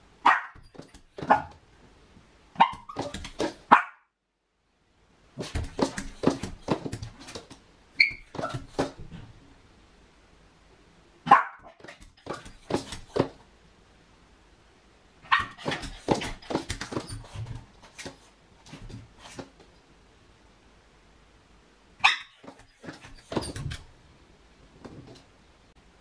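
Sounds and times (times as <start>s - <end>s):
dog barking: 0.2s - 0.6s, 1.2s - 1.6s, 2.6s - 4.1s, 11.2s - 11.9s, 15.3s - 15.8s, 22.0s - 22.4s.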